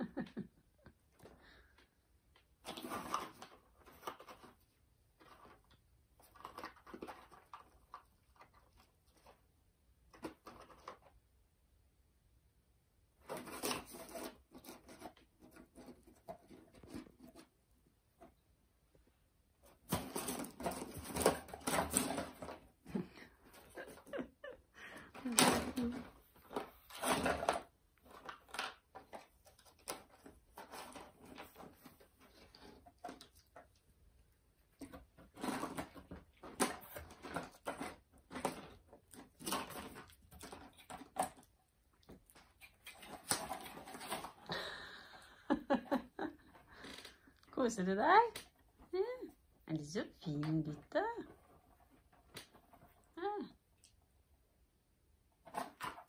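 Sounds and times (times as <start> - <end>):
puppy rustling and scratching: 13.2 - 18.3, 25.8 - 44.4.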